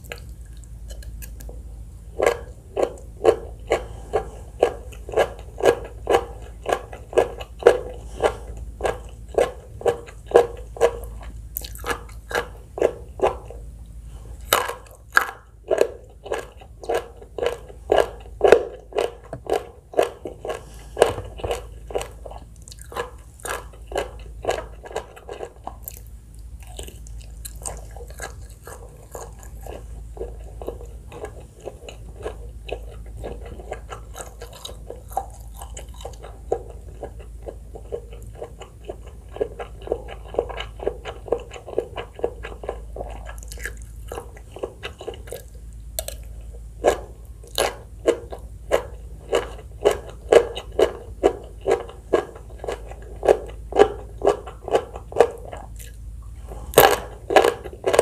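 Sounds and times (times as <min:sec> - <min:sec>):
wet crunchy chewing: 0:00.0 - 0:58.0.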